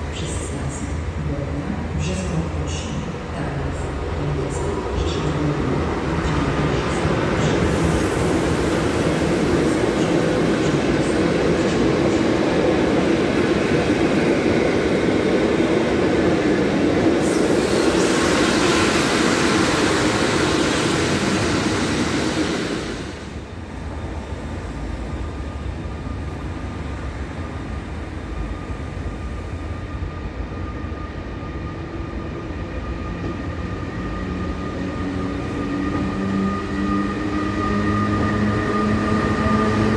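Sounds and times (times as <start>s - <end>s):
train coaches rumbling over rails: 0.0s - 26.7s
electric locomotive hum: 2.1s - 39.9s.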